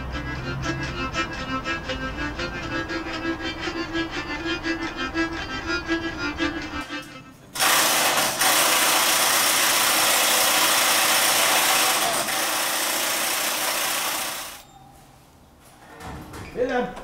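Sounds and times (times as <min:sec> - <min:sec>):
impact wrench running: 0:07.6 - 0:14.6.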